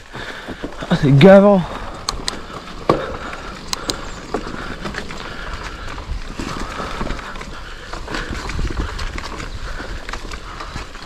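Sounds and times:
bike knocks and rattles: 0.0s - 11.0s
bike tyre noise on dirt: 0.0s - 11.0s
sharp clicks: 1.9s - 2.5s, 3.5s - 5.2s.

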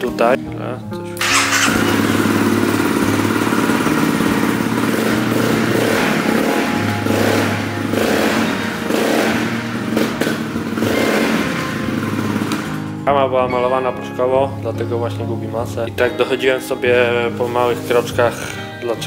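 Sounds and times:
motorcycle engine revving: 1.2s - 13.0s.

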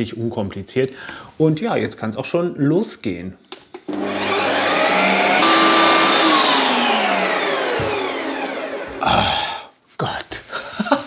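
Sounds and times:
ice cream maker motor whirring: 3.9s - 9.4s.

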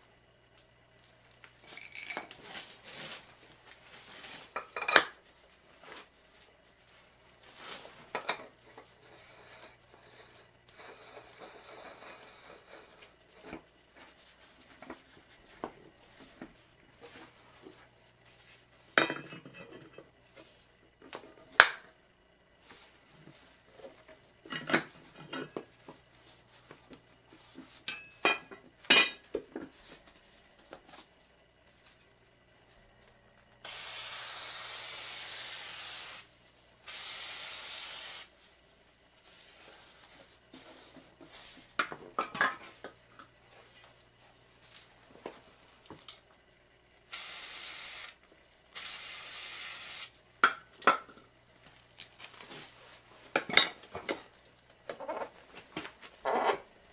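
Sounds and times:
metal tools clanking: 27.9s - 29.5s
aerosol spray can hissing: 33.6s - 38.3s, 47.1s - 48.2s, 48.8s - 50.1s.

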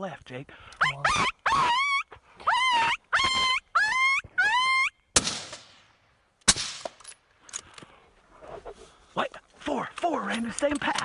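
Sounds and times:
predator call yelps: 0.8s - 5.0s
rifle shot: 5.2s - 5.8s, 6.4s - 7.0s.

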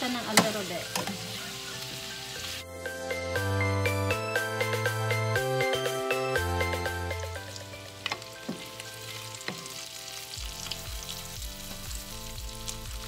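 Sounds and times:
meat sizzling in a pan: 0.0s - 2.7s, 7.4s - 13.0s
background music: 0.0s - 13.0s.

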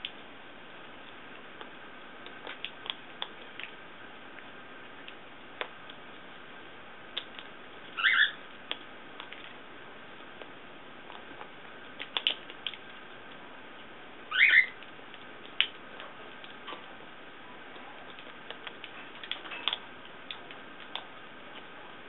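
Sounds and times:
parrot squeak: 8.0s - 8.4s, 14.3s - 14.8s.

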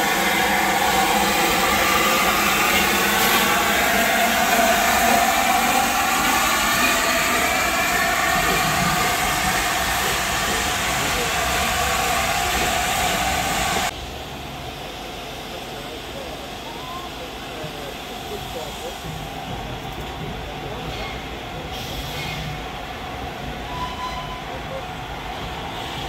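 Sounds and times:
steam train rushing and hissing: 0.0s - 26.0s.

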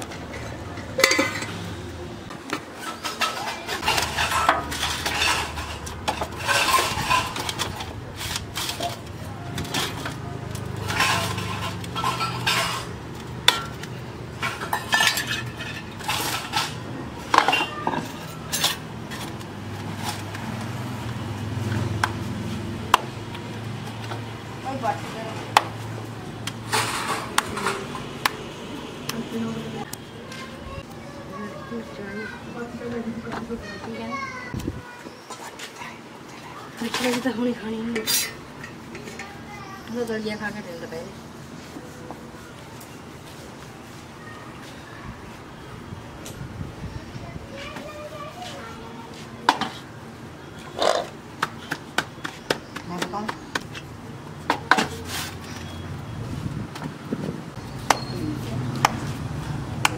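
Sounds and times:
pots and plates clinking: 0.0s - 1.8s, 2.6s - 19.4s, 26.6s - 28.1s, 36.8s - 39.4s.

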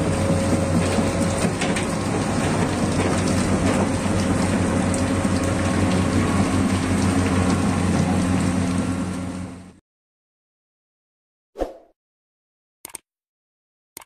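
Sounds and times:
excavator diesel engine running: 0.0s - 9.8s.

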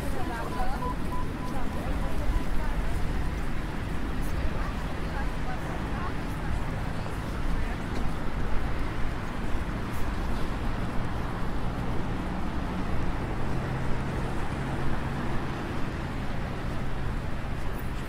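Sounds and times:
bus engine humming: 0.0s - 7.5s
city street traffic: 0.0s - 18.0s.

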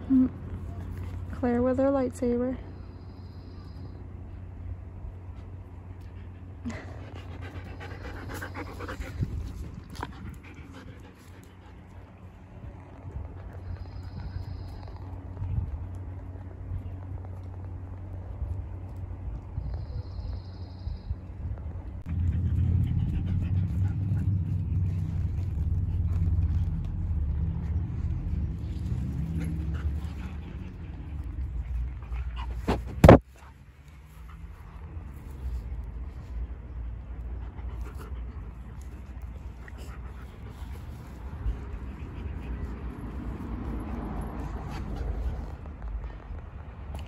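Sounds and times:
low engine rumble: 0.0s - 47.0s
dog panting: 5.3s - 14.8s, 22.1s - 35.1s, 36.9s - 46.6s.

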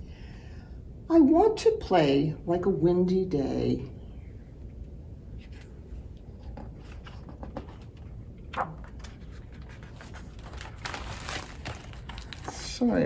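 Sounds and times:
book rustling: 5.4s - 13.0s
paper rustling: 5.4s - 13.0s.

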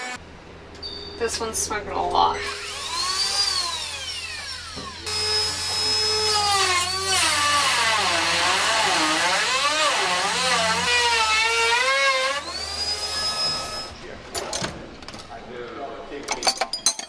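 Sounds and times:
rotary cutting tool whining: 0.0s - 0.2s, 2.4s - 14.0s.

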